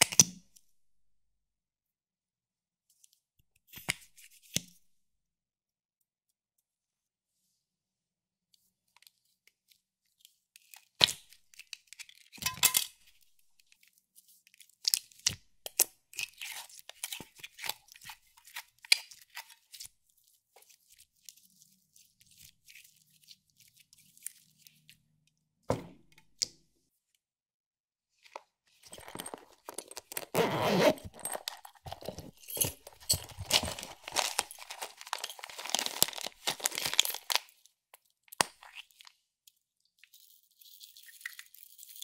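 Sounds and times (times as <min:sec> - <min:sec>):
thump: 0:25.7 - 0:26.0.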